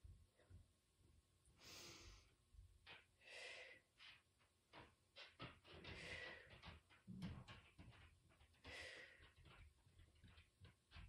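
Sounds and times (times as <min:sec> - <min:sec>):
woman breathing through mouth: 0:01.6 - 0:02.3.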